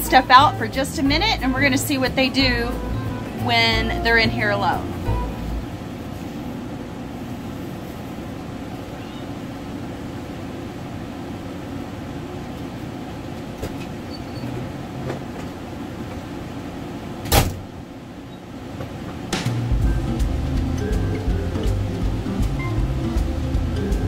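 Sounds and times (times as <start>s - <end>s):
low mechanical hum: 0.0s - 24.0s
sharp knock: 19.3s - 19.8s.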